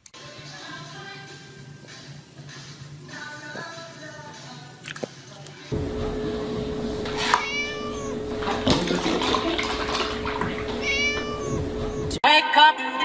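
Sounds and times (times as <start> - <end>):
low hum: 5.7 - 12.2
kitten meowing: 6.7 - 12.2
milk pouring into plastic tub: 7.0 - 11.8.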